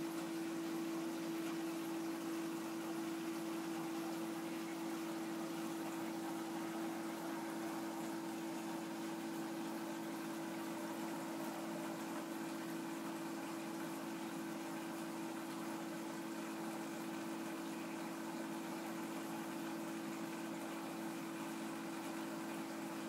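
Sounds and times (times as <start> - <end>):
aquarium equipment hum: 0.0 - 23.0.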